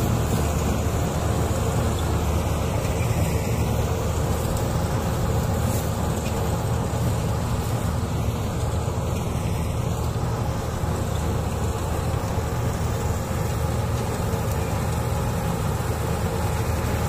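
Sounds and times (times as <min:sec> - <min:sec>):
combine harvester engine drone: 0:00.0 - 0:17.0.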